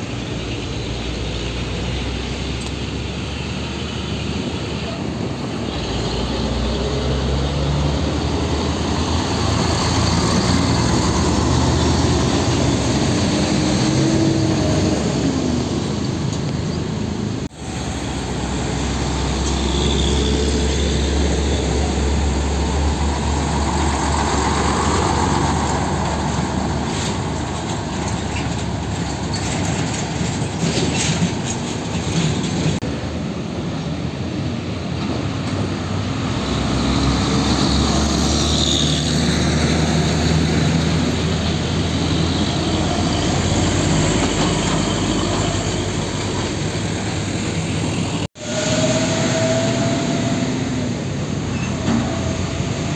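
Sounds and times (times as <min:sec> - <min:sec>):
diesel trucks passing: 0:00.0 - 0:52.9
road noise: 0:00.0 - 0:52.9.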